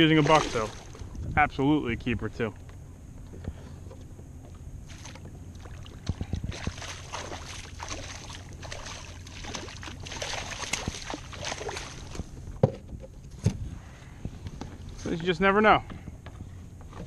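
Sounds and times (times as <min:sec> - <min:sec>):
fish thrashing and splashing: 0:00.0 - 0:01.1, 0:04.9 - 0:12.4.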